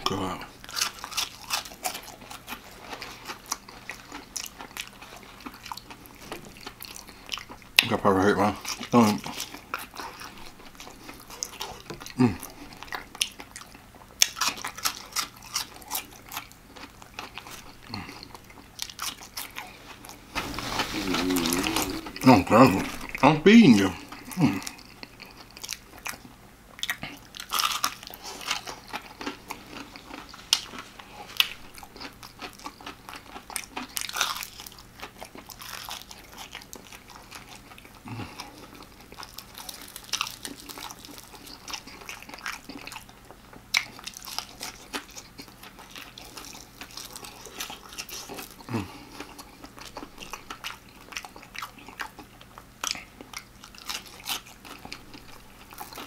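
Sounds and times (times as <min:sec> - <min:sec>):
crispy fried chicken crunching: 0:00.0 - 0:56.0.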